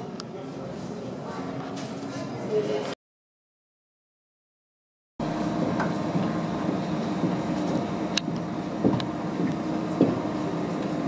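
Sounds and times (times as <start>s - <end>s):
steady mechanical hum: 5.2s - 11.0s.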